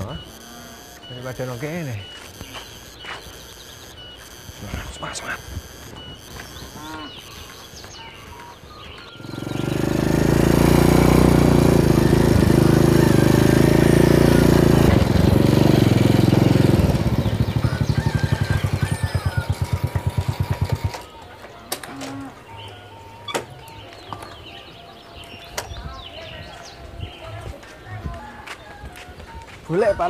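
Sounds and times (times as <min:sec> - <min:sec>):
motorcycle engine idling: 0:06.0 - 0:21.4.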